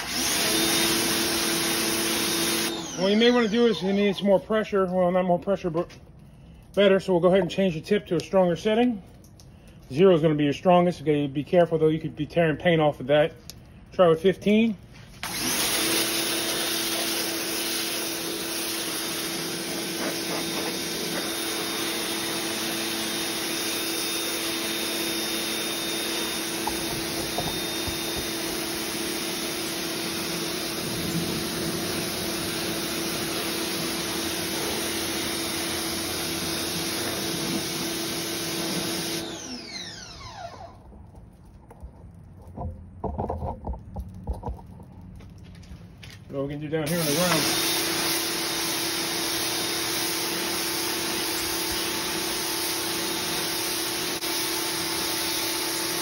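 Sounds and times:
motor winding down whine: 0.0 - 4.4, 15.2 - 41.0
pressure washer motor humming: 0.0 - 4.9, 15.1 - 40.9, 46.8 - 56.0
spray jet hissing on brick: 15.6 - 39.2, 46.9 - 56.0.

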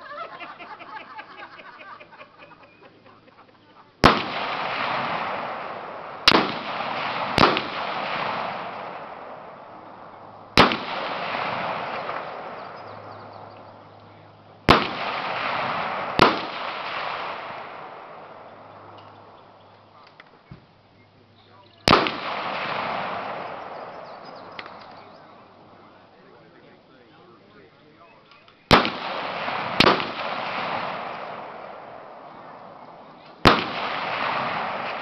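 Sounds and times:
gunshots echoing: 4.0 - 19.6, 21.8 - 26.1, 28.7 - 35.0.

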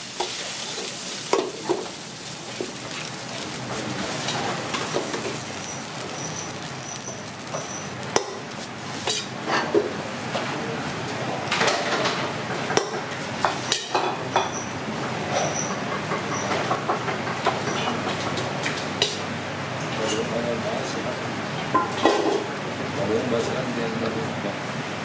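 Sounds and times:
steady hiss: 0.0 - 11.5
pots and utensils clinking: 0.1 - 10.5, 11.4 - 19.2, 20.0 - 20.3, 21.7 - 22.5.

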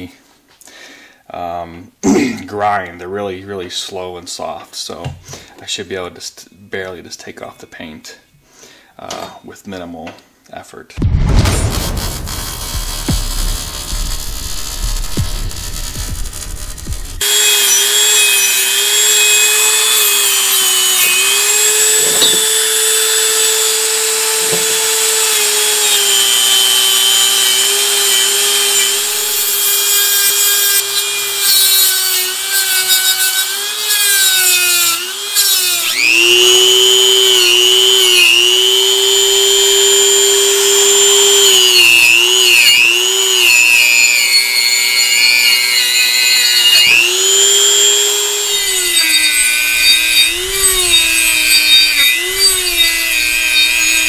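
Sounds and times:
rotary tool motor whine: 12.1 - 54.0.

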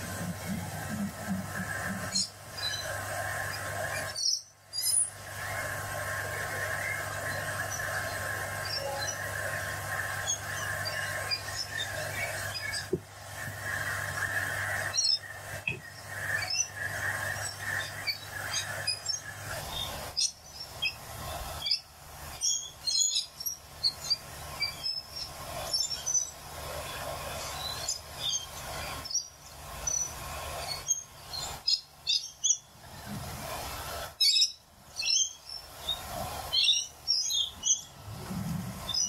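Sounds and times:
parrots chirping: 8.6 - 9.5.

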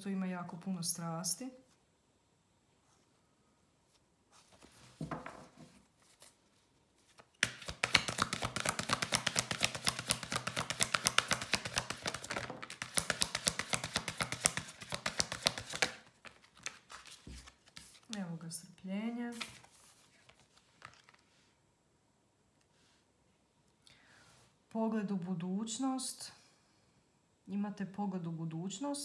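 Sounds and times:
cards being shuffled: 4.4 - 18.2, 19.3 - 21.4
soft card rustling: 5.6 - 18.4, 19.1 - 21.5.

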